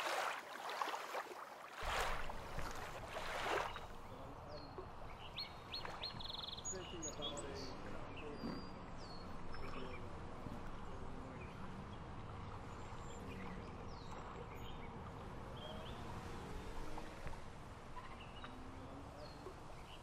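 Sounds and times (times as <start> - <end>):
bird chirps: 3.6 - 10.0.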